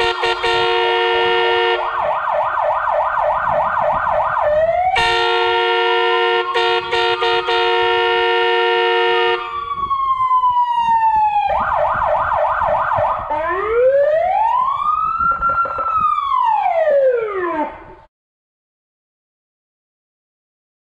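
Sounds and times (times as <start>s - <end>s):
multi-note horn blast: 0.0s - 2.0s, 5.0s - 9.6s
electronic siren wailing and yelping: 0.0s - 5.2s, 9.3s - 18.0s.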